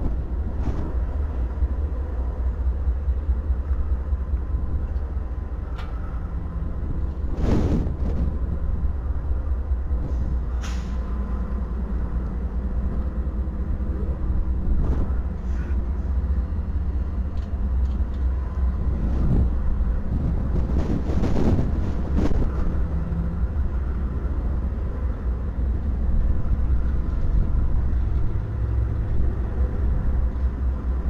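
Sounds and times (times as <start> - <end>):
diesel locomotive engine rumble: 0.0 - 31.0
short air hisses: 10.1 - 11.1.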